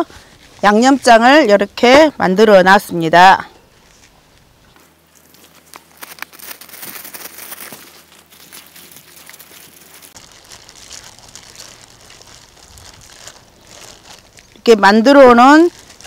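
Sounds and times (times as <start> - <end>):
plastic glove crinkling: 4.9 - 16.0.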